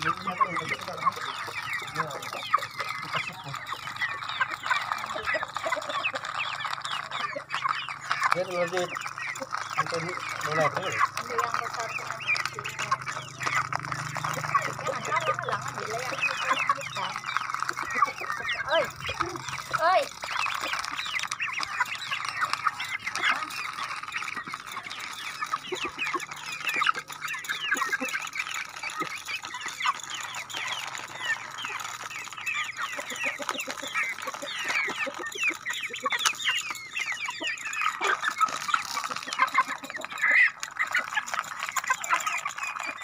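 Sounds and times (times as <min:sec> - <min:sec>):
chicks peeping and clucking: 0:00.0 - 0:43.0.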